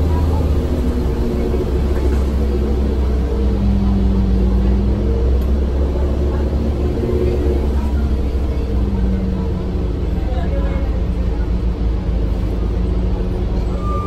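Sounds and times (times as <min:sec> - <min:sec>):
bus engine rumbling: 0:00.0 - 0:14.0.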